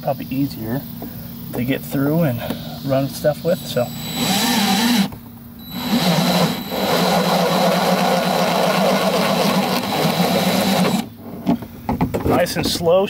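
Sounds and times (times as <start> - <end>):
cordless drill boring plastic: 3.8 - 11.1.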